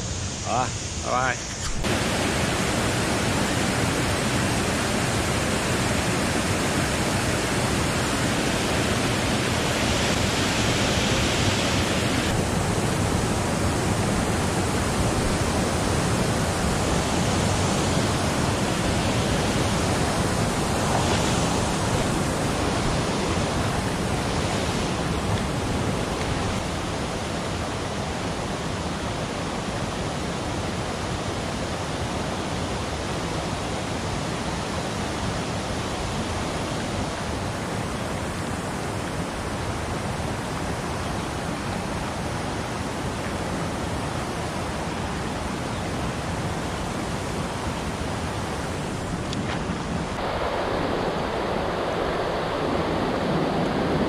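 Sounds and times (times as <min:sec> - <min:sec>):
water rushing over weir: 0:00.0 - 0:54.0.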